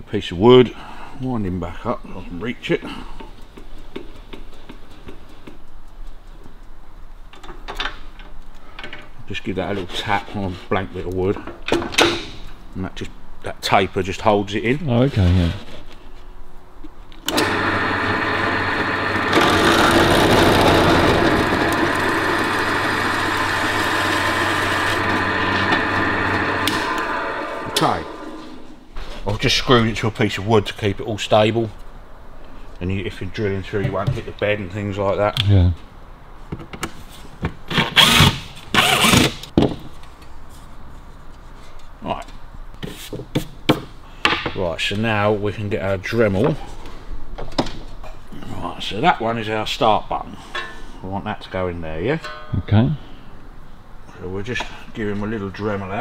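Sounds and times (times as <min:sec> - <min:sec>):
drill bit cutting metal: 0:17.3 - 0:28.4
drill motor humming: 0:17.3 - 0:28.7.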